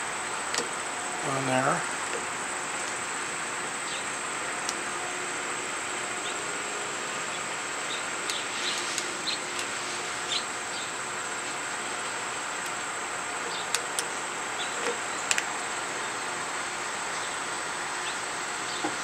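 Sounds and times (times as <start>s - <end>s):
outdoor hiss: 0.0s - 19.0s
light clicks of small parts: 13.7s - 14.1s, 14.8s - 15.5s.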